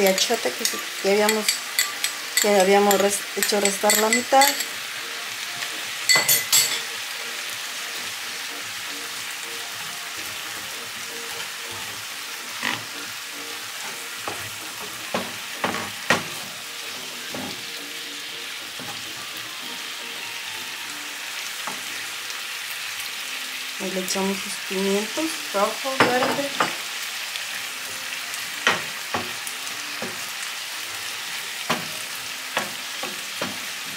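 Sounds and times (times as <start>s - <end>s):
onion sizzling in a skillet: 0.0s - 33.9s
spoon knocking against pan: 0.2s - 4.7s, 6.1s - 6.9s, 13.8s - 17.7s.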